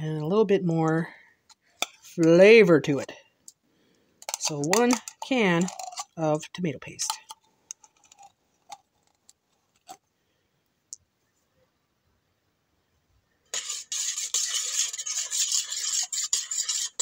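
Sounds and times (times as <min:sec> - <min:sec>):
metal utensil stirring in bowl: 0:04.2 - 0:06.3, 0:06.9 - 0:08.8, 0:13.5 - 0:17.0.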